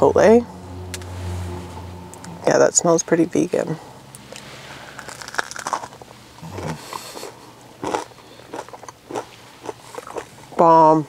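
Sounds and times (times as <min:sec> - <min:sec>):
chewing crunchy fried food: 0:04.2 - 0:10.6.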